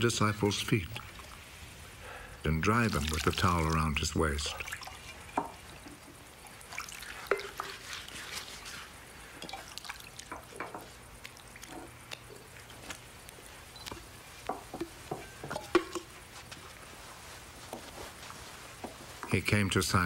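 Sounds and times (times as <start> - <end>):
water splashing in a basin: 0.2 - 1.8, 2.5 - 13.2.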